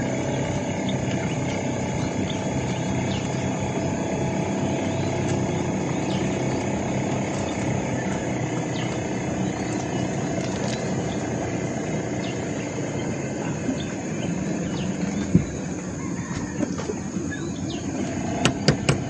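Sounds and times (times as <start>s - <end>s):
steady high buzz: 0.0s - 16.2s
distant motorboat engine droning: 0.0s - 19.0s.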